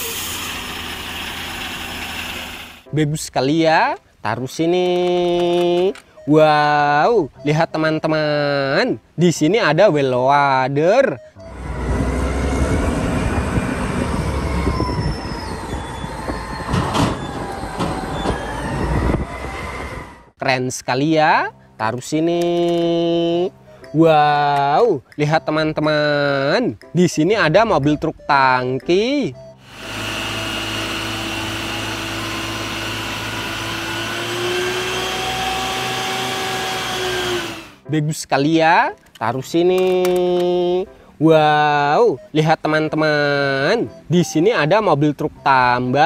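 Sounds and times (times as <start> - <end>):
water jet hissing: 0.0 - 2.8
diesel engine rumbling: 0.0 - 2.9, 11.3 - 20.4, 29.3 - 37.8
truck pump whirring drone: 0.0 - 2.9, 11.4 - 20.3, 29.5 - 37.8
thin high whines: 11.4 - 20.3, 29.5 - 37.8.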